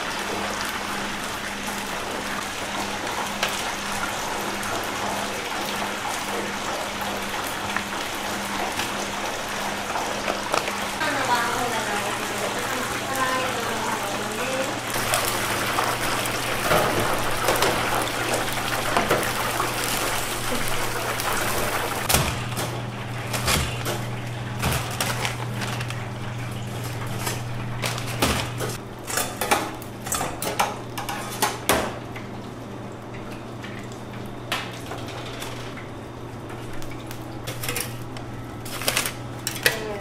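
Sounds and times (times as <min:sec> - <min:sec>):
oil sizzling in deep fryer: 0:00.0 - 0:40.0
utensils clattering on steel counter: 0:22.1 - 0:31.9, 0:37.4 - 0:38.0, 0:38.6 - 0:40.0.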